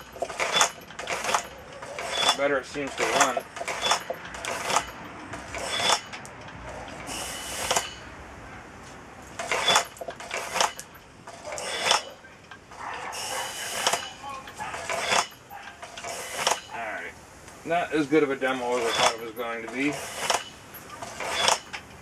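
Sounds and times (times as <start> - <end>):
compressed air hisses: 7.1 - 8.0, 13.1 - 14.1.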